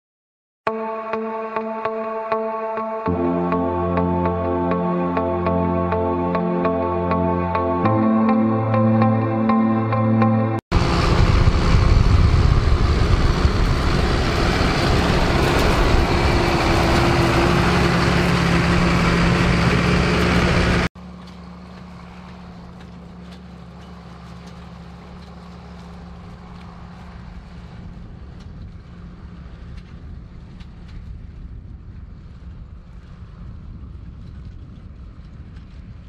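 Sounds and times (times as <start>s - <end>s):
tractor diesel engine running: 3.2s - 30.8s.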